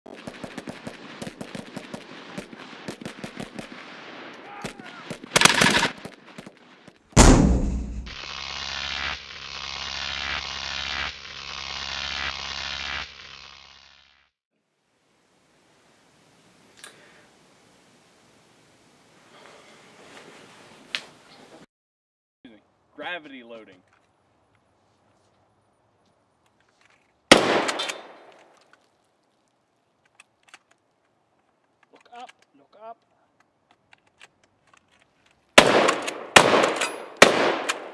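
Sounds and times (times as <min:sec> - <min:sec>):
shotgun shot: 0:04.6 - 0:06.1, 0:07.2 - 0:08.2, 0:27.3 - 0:28.3, 0:35.6 - 0:37.9
loud gunshot-like bang: 0:07.2 - 0:08.1
low hum: 0:07.2 - 0:13.7
shotgun action clicks: 0:27.4 - 0:28.8.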